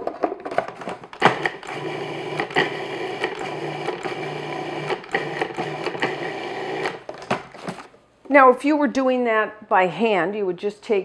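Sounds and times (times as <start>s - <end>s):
food processor motor running: 1.2s - 7.1s.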